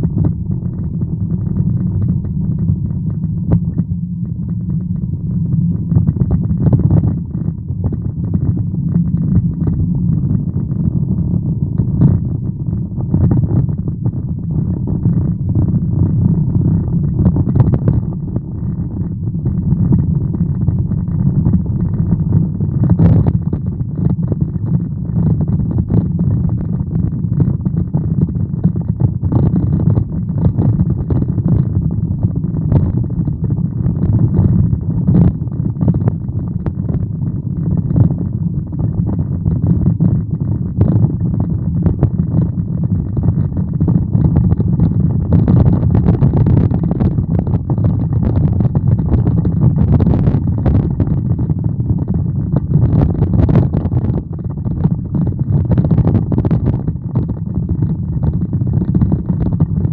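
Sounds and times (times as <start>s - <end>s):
car engine and tyres rumbling: 11.7s - 23.8s.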